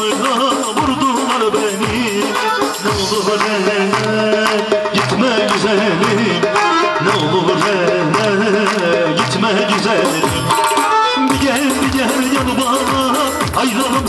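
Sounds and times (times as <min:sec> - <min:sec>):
folk dance music over speakers: 0:00.0 - 0:14.0.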